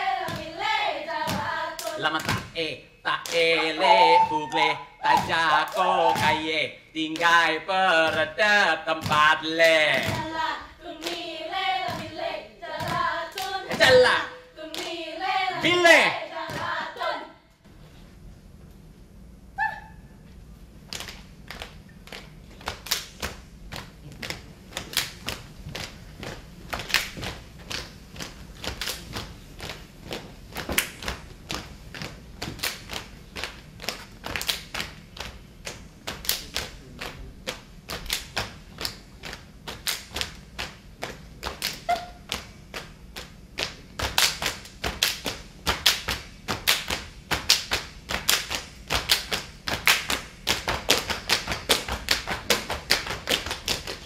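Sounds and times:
rhythmic hand claps: 0.0s - 17.1s, 20.9s - 54.0s.

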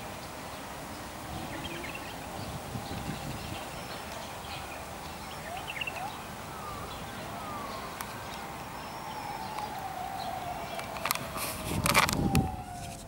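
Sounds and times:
outdoor background noise: 0.0s - 13.0s
bird-like chirps: 2.9s - 11.0s.

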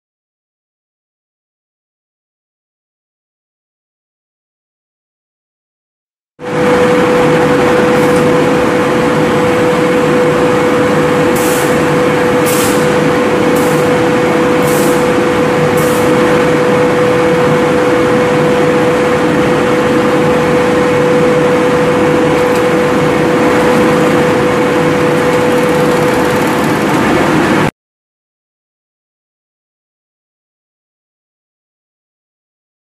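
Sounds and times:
packing machine whine: 6.4s - 27.7s
short air hisses: 12.5s - 13.0s, 14.6s - 15.1s.

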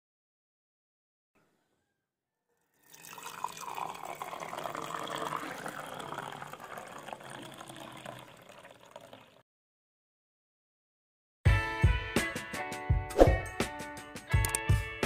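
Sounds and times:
tea pouring into a glass: 2.8s - 9.4s.

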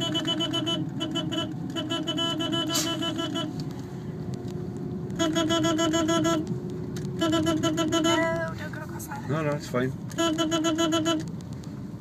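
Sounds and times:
car engine running slowly: 0.0s - 12.0s.

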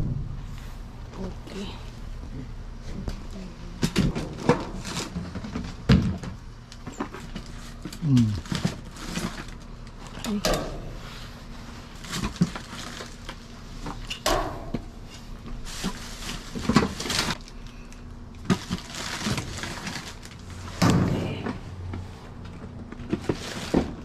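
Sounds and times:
plastic and cardboard rustling: 3.8s - 10.4s, 11.0s - 14.1s, 15.0s - 24.0s.

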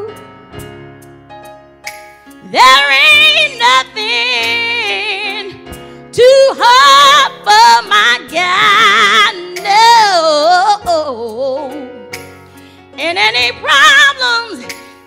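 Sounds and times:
electric keyboard accompaniment: 0.0s - 15.0s
woman singing gospel: 2.4s - 11.9s, 13.0s - 14.8s.

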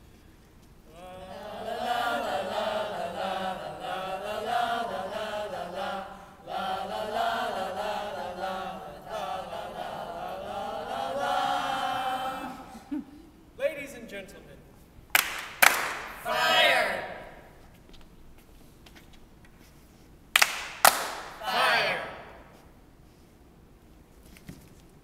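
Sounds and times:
voices singing a chant: 0.9s - 13.0s, 16.2s - 17.5s, 20.9s - 22.5s.

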